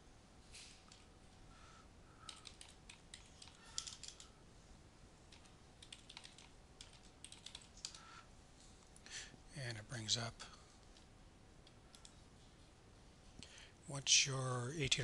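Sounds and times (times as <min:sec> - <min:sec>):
keyboard typing: 0:02.2 - 0:04.3, 0:05.3 - 0:08.1, 0:11.6 - 0:12.2.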